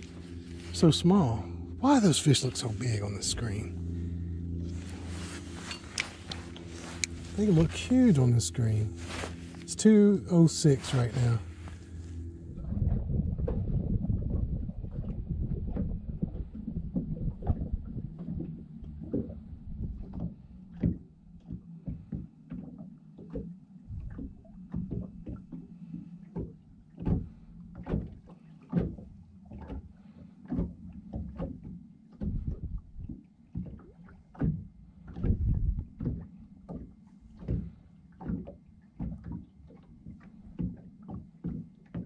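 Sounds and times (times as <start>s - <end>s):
small waves slapping boat hull: 0.0s - 42.0s
steady low hum: 0.0s - 42.0s.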